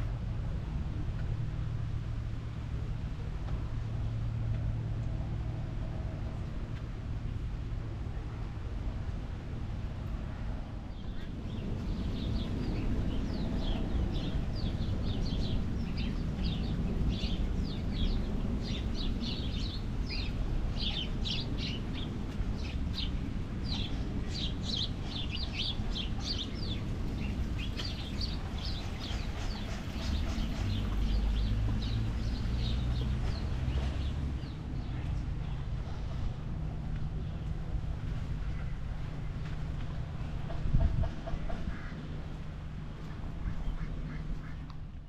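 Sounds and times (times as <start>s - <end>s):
low outdoor rumble: 0.0s - 45.0s
small birds chirping: 10.9s - 36.2s.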